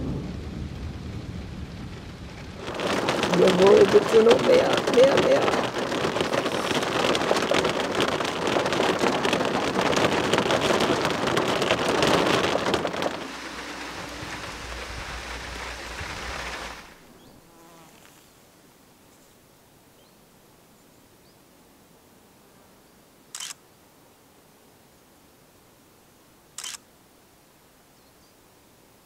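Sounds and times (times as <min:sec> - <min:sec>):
heavy rain on a car roof: 0:00.0 - 0:17.5.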